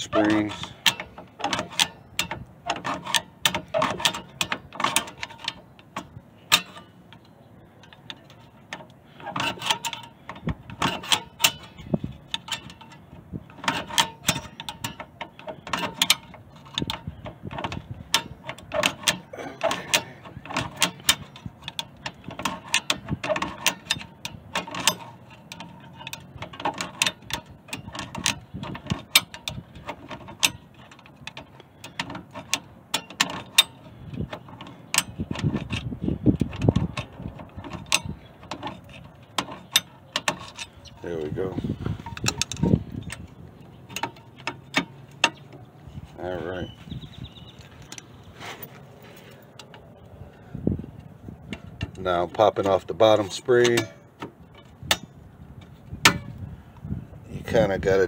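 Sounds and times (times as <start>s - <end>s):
brake adjusting screw clicking: 0.0s - 41.0s, 41.6s - 45.7s.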